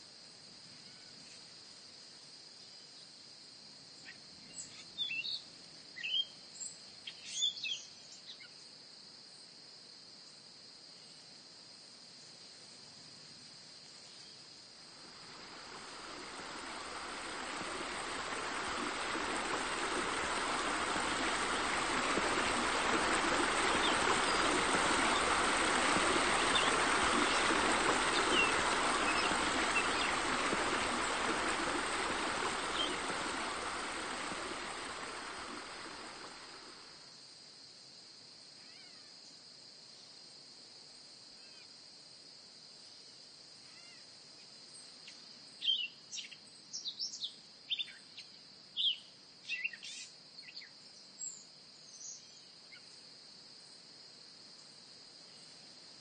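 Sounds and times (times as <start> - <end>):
running water rushing: 14.7 - 37.1.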